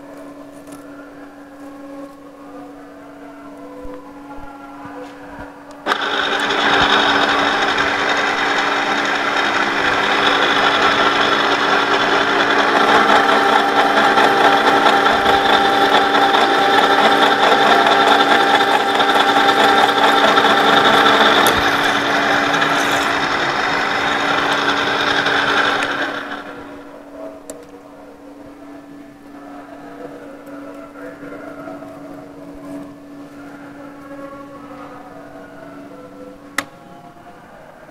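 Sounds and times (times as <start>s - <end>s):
milling spindle hum: 5.5s - 37.2s
end mill cutting steel: 5.8s - 26.9s.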